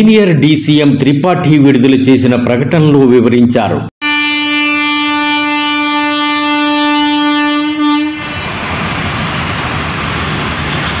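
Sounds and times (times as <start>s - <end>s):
locomotive horn blast: 4.0s - 8.6s
passenger train rolling past: 5.6s - 11.0s.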